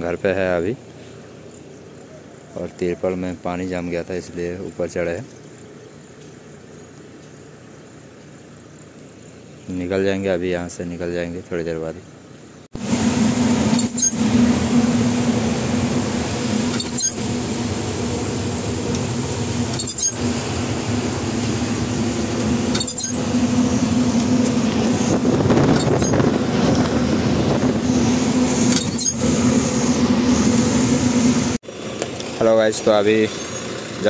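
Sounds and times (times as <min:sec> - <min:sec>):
truck engine and tyre drone: 0:12.7 - 0:34.0.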